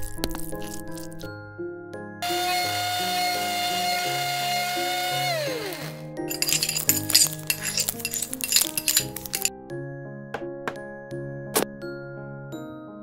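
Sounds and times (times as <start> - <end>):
utensils clinking: 0.0 - 1.3, 3.1 - 9.5
background music: 0.0 - 13.0
small electric motor whirring: 2.2 - 9.0.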